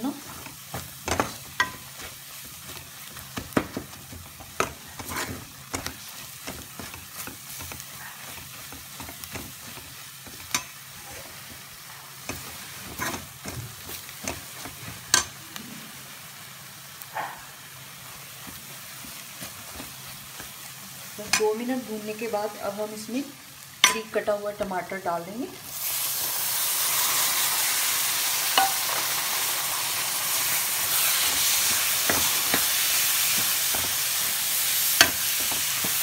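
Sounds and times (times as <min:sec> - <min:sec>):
masala sizzling in ghee: 0:00.0 - 0:36.0
spoon scraping and knocking pan: 0:00.2 - 0:15.4, 0:23.8 - 0:24.7, 0:28.4 - 0:29.2, 0:30.4 - 0:36.0.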